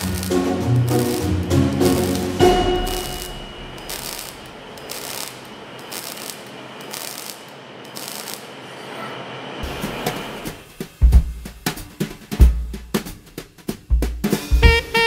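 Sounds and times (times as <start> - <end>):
music track: 0.0 - 5.4, 14.2 - 15.0
welding arc crackling: 0.0 - 8.7.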